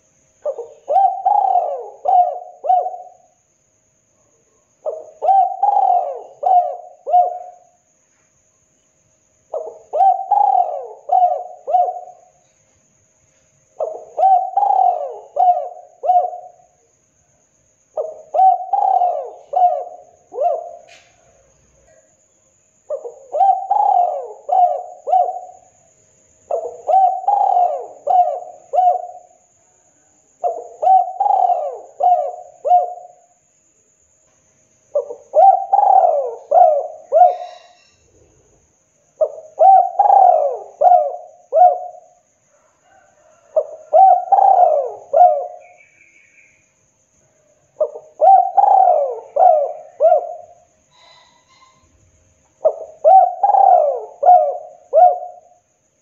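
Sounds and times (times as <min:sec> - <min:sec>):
dove cooing: 0:00.0 - 0:03.4, 0:04.8 - 0:07.8, 0:09.5 - 0:12.4, 0:13.8 - 0:16.8, 0:18.0 - 0:22.0, 0:22.9 - 0:25.8, 0:26.5 - 0:29.4, 0:30.4 - 0:33.2, 0:34.9 - 0:38.0, 0:39.2 - 0:45.8, 0:47.8 - 0:51.8, 0:52.6 - 0:55.7.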